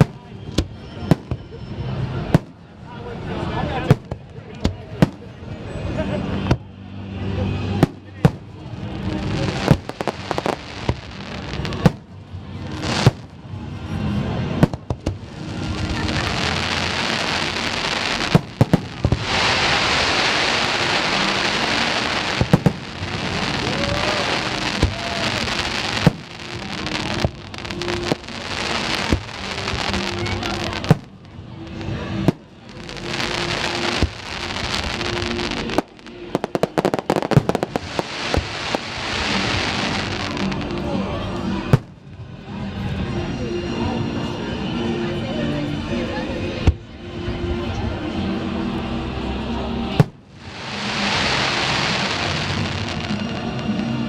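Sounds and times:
crackling hiss of fireworks: 0.0 - 42.2, 49.8 - 54.0
fireworks bangs: 7.7 - 12.1, 14.4 - 31.2, 31.8 - 40.8, 50.0 - 53.6.

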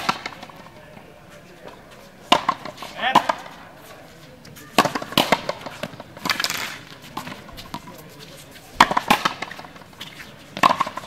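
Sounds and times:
ball struck by rackets: 0.0 - 0.7, 2.3 - 3.6, 4.7 - 8.0, 8.8 - 11.0.

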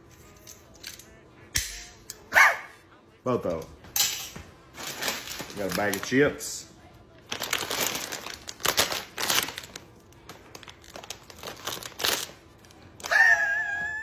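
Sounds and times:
plastic bag crinkling: 4.7 - 6.5, 7.2 - 13.2.

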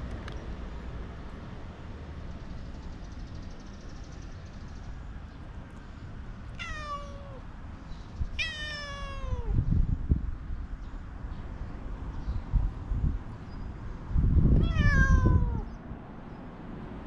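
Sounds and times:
cat meowing: 6.6 - 7.5, 8.4 - 9.6, 14.6 - 15.7.

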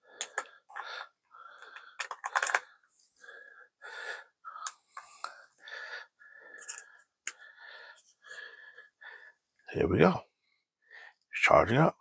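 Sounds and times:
cable handling sounds: 1.6 - 2.9, 6.6 - 7.4.

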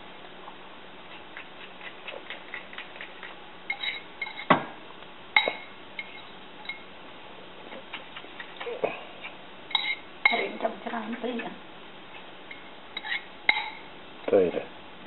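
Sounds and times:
spoon clinking against ceramic bowl: 5.4 - 6.9, 9.7 - 10.6, 12.5 - 13.9.

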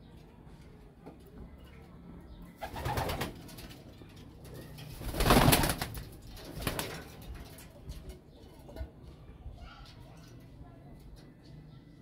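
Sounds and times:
pigeon wings clattering: 2.6 - 4.0, 4.6 - 7.8.

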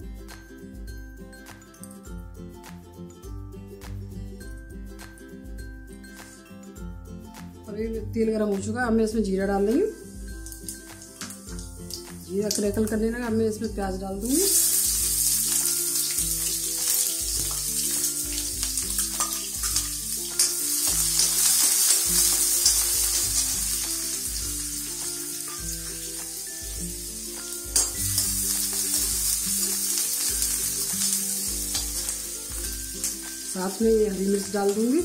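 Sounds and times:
background music: 0.0 - 35.0
onions sizzling in oil: 9.9 - 12.6, 14.2 - 35.0
spoon clinking against pan: 19.0 - 24.1, 27.7 - 33.5.

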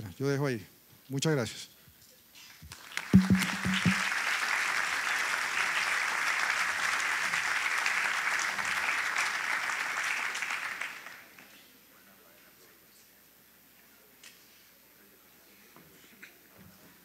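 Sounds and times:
audience applauding: 2.8 - 11.3
knocks: 3.2 - 4.1.

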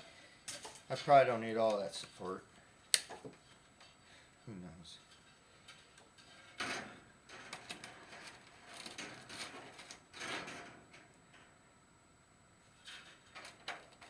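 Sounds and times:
wire mesh rustling and scraping: 5.1 - 11.5, 12.6 - 14.0.

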